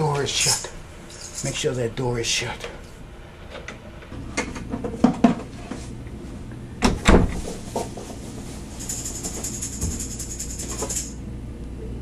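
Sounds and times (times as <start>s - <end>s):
door shutting with thump: 6.8s - 7.9s.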